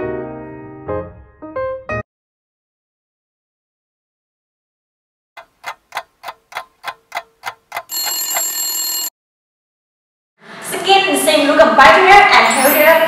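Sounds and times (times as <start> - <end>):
clock ticking: 5.4 - 8.5
alarm clock ringing: 7.8 - 9.1.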